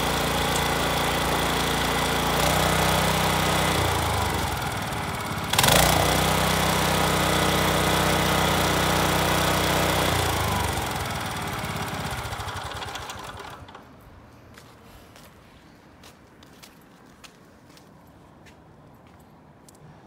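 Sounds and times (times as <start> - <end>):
tiller engine running: 0.0 - 13.9
faint footsteps: 14.2 - 20.0.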